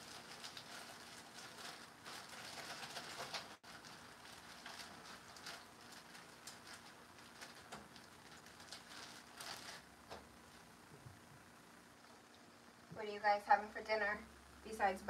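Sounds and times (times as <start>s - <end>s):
plastic bag crinkling: 0.0s - 10.6s.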